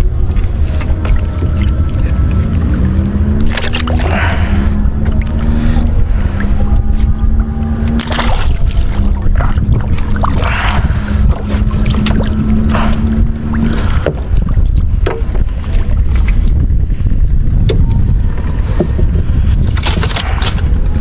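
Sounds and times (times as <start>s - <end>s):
steady hum: 0.0s - 21.0s
wind rumble on microphone: 0.0s - 21.0s
splashes in sea water: 7.9s - 10.9s.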